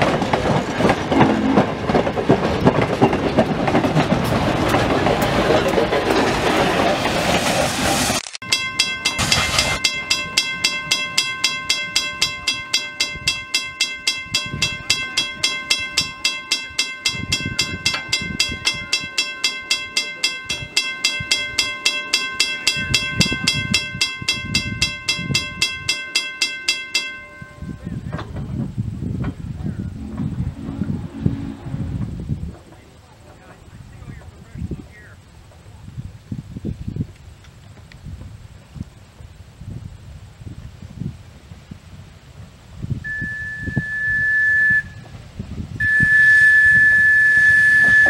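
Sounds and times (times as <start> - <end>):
steam locomotive rushing roar: 0.0 - 23.5, 29.8 - 34.4
steam whistle: 29.9 - 32.2, 43.0 - 45.1, 45.8 - 48.0.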